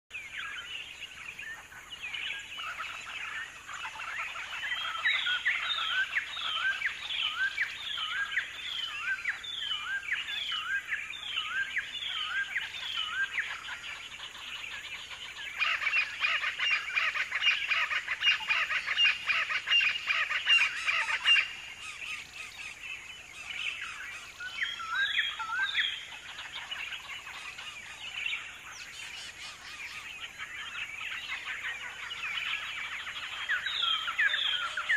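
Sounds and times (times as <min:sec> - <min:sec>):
wild birds chirping: 0:00.1 - 0:34.9.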